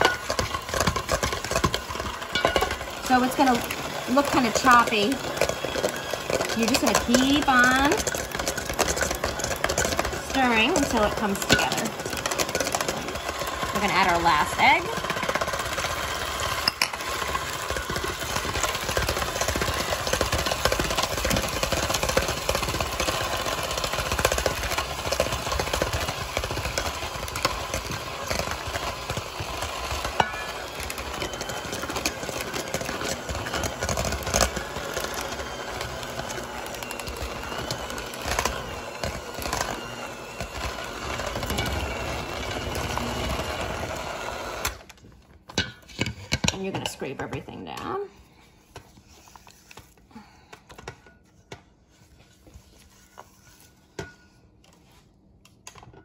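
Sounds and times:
beaters knocking bowl: 0:00.0 - 0:13.0
electric hand mixer running: 0:00.0 - 0:45.0.

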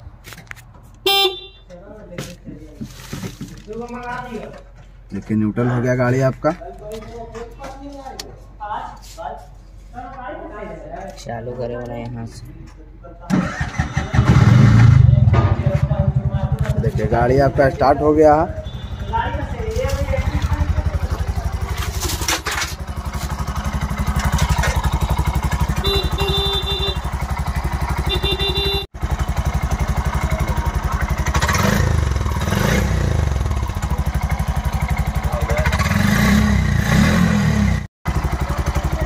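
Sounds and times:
auto rickshaw engine idling: 0:13.3 - 0:36.1, 0:38.1 - 0:39.0.

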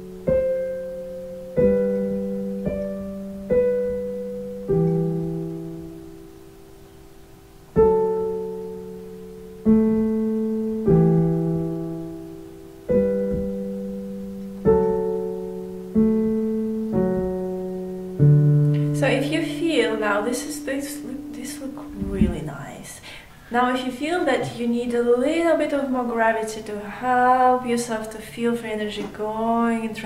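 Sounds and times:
digital piano chords: 0:00.0 - 0:30.0.

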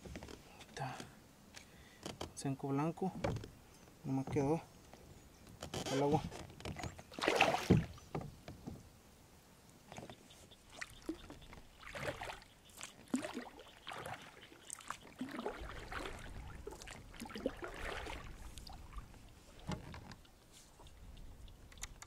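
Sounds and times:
paddle splashing in water: 0:06.7 - 0:08.2, 0:09.9 - 0:21.4.

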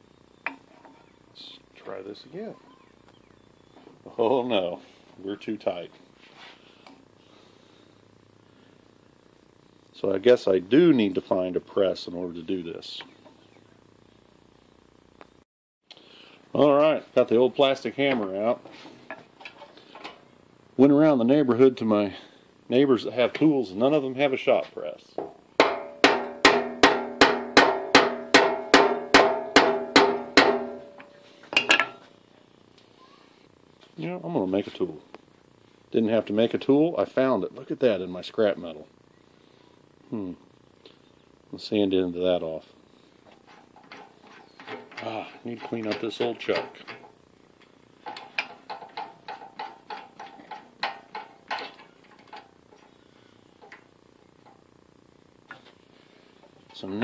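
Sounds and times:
hammer striking metal: 0:25.2 - 0:32.0.

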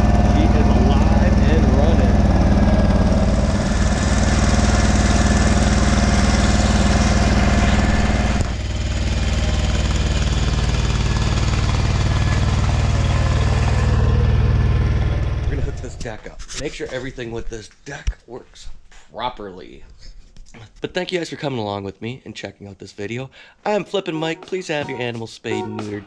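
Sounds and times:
garden tractor engine running: 0:00.0 - 0:16.2.

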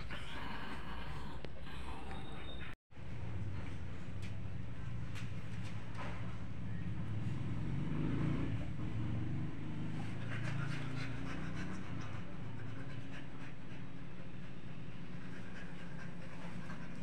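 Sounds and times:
dogs panting: 0:09.8 - 0:17.0.

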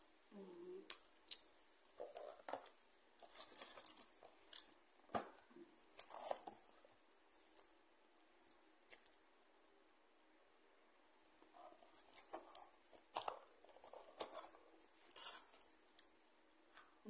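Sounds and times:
paper and cardboard rustling: 0:01.9 - 0:07.6, 0:11.5 - 0:15.9.

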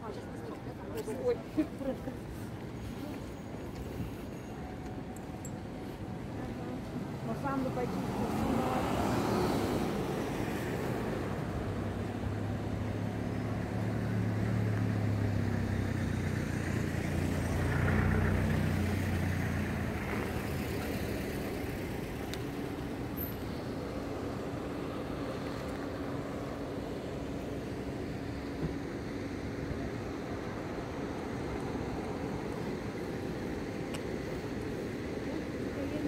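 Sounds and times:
road noise: 0:00.0 - 0:36.0
vehicle passing: 0:07.2 - 0:22.3.

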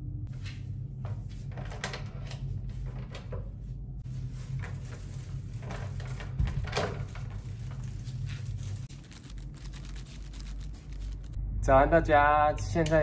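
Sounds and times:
steady low hum: 0:00.0 - 0:13.0
plastic bag rustling: 0:04.1 - 0:11.4.

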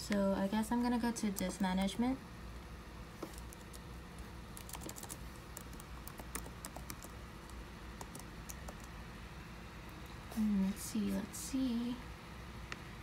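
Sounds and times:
laptop keyboard typing: 0:03.2 - 0:03.9, 0:04.5 - 0:09.0.

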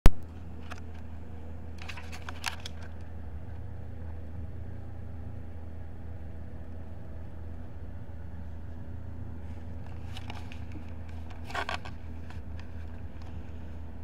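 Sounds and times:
steady low hum: 0:00.1 - 0:14.0
camera handling noise: 0:01.8 - 0:03.0, 0:09.9 - 0:13.4
fingers scraping over lens: 0:09.6 - 0:13.7.

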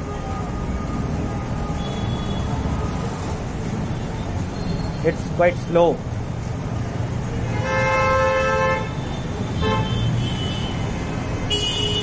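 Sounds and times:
road traffic rumble: 0:00.0 - 0:12.0
vehicle horn: 0:07.5 - 0:09.0, 0:09.6 - 0:10.8, 0:11.5 - 0:12.0.

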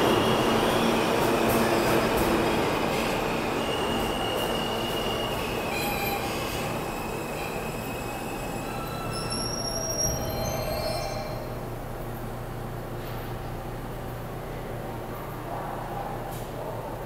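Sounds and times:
train wheels squealing on rails: 0:00.0 - 0:11.6.

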